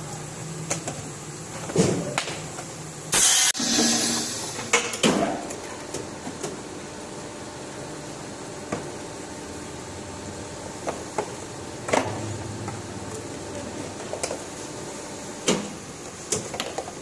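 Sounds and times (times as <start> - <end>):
machinery humming: 6.6 - 16.0.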